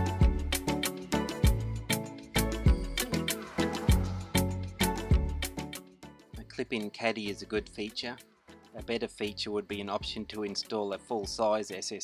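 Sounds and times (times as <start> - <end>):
music with struck pitched notes: 0.0 - 5.8.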